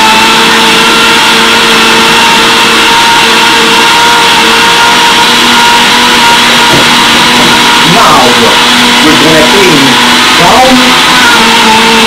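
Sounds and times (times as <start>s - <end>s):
blender motor running: 0.0s - 12.0s.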